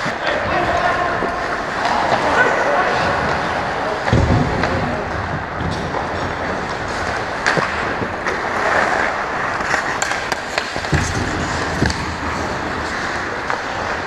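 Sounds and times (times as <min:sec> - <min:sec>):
hockey sticks clacking: 0:00.0 - 0:14.0
puck being hit: 0:00.0 - 0:14.0
skates scraping on ice: 0:00.0 - 0:14.0.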